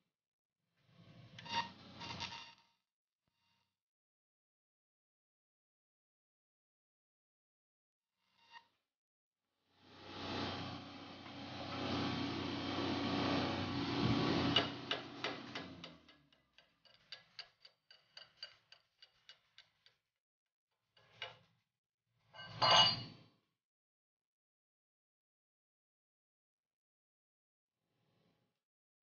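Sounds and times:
cooling weld ticking and crackling: 14.6 - 20.0.

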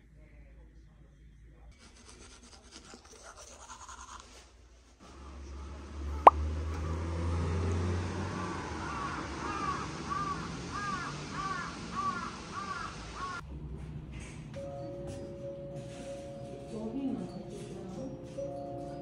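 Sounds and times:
crow cawing: 8.8 - 13.4
steady outdoor hiss: 8.9 - 13.4.

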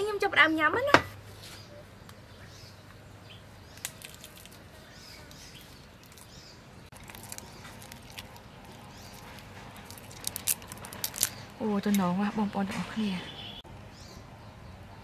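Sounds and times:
shrimp shell crackling while peeled: 3.7 - 11.9.

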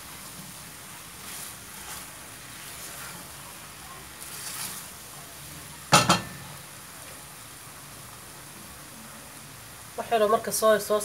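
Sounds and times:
spatula scraping a pan: 0.0 - 5.0
low sizzle: 0.0 - 11.0
spatula knocking on pan: 5.9 - 6.4.

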